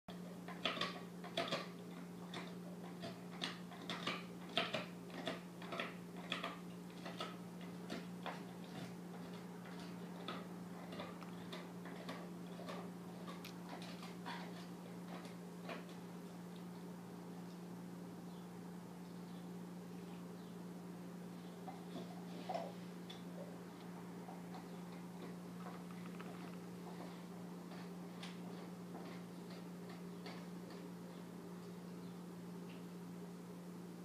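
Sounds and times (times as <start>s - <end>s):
dog gnawing a hard bone: 0.1s - 16.9s, 21.6s - 31.1s
steady low hum: 0.1s - 34.0s.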